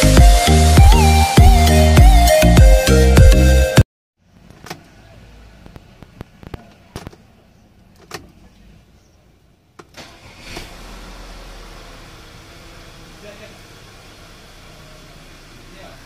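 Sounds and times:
car engine starting and idling: 4.2 - 16.0.

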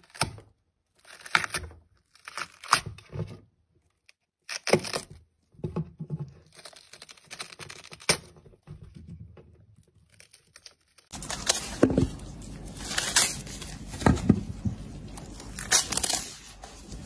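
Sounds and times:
watermelon rind cracking: 0.0 - 5.4, 6.3 - 8.6, 9.7 - 14.4, 15.0 - 16.7
watermelon tearing and crunching: 0.0 - 5.5, 6.2 - 9.0, 9.6 - 17.0.

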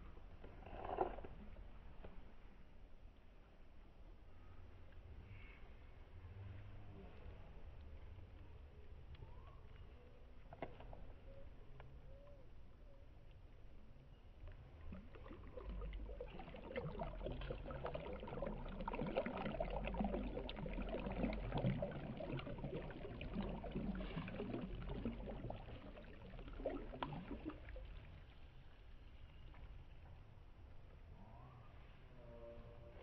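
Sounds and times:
hand splashing in flowing water: 14.9 - 28.0.

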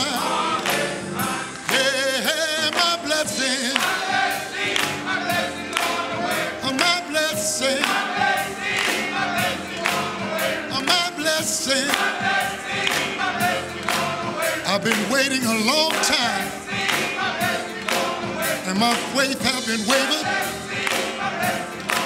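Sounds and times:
lead singer on microphone: 0.0 - 4.1
instrumental accompaniment with beat: 0.0 - 22.0
men's choir singing gospel: 0.0 - 22.0.

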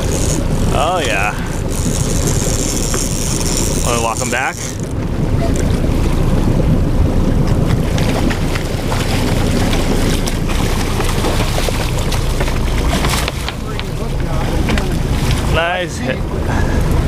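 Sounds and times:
water rushing along boat hull: 0.0 - 17.0
wind buffeting microphone: 0.0 - 17.0
fish splashing at surface: 7.6 - 15.6.

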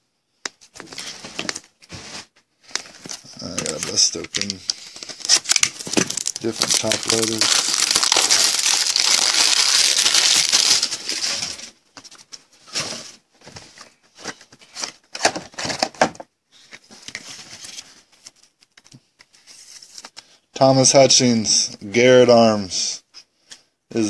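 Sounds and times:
rigid plastic clicks and rustles: 2.6 - 20.3
plastic wrap crinkling: 2.7 - 11.7.

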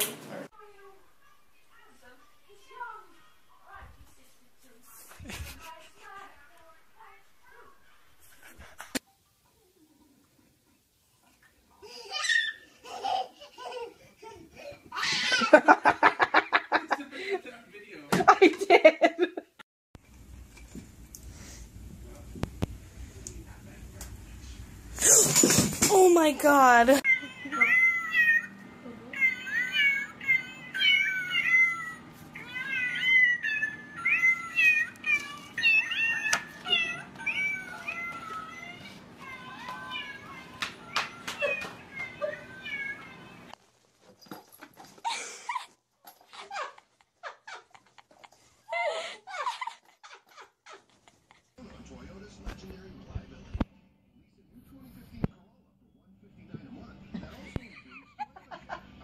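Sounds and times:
cat meowing: 27.0 - 28.5, 29.1 - 43.5.

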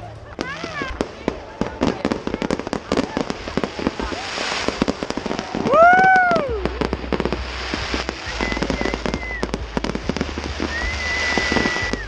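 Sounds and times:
fireworks crackling bangs: 0.0 - 12.0
high firework whistle: 3.7 - 12.0.

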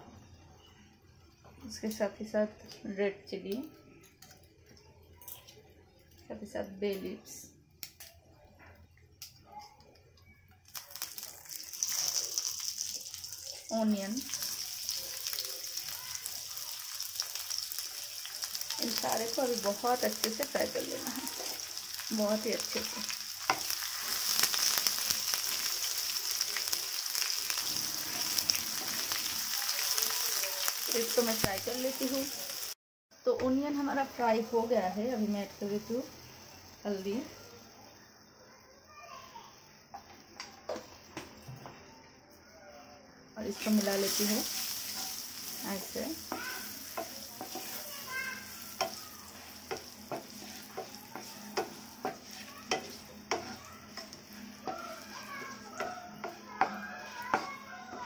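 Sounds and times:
onions sizzling in oil: 10.6 - 32.8, 33.5 - 38.4, 43.4 - 58.0
spatula tapping pan: 22.6 - 23.8, 44.1 - 58.0.

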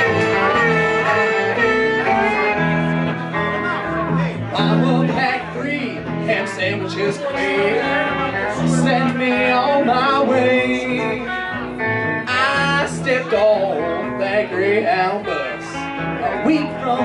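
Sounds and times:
electric guitar: 0.0 - 17.0
upright double bass: 0.0 - 17.0.

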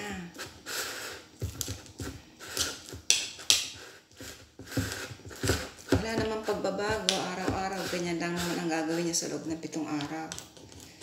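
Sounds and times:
spoon scraping inside glass jar: 2.4 - 9.5.

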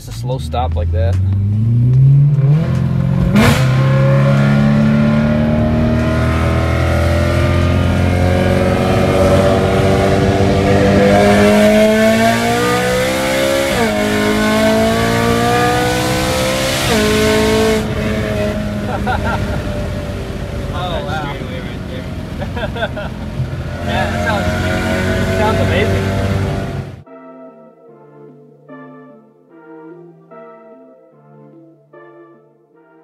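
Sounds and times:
car engine accelerating hard: 0.0 - 27.0
gear upshifts: 1.1 - 27.0.

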